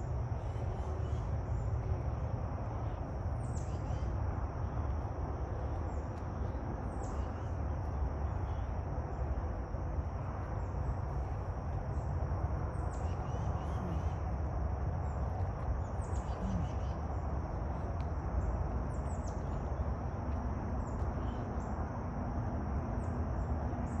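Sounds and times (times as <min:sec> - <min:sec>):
steady high-pitched hum: 0:00.0 - 0:24.0
birds chirping: 0:12.7 - 0:14.2, 0:15.0 - 0:17.3.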